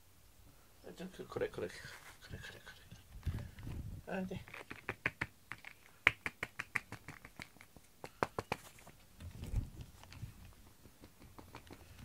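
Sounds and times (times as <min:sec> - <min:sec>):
grooming brush clicking on cat fur: 0:10.7 - 0:12.0.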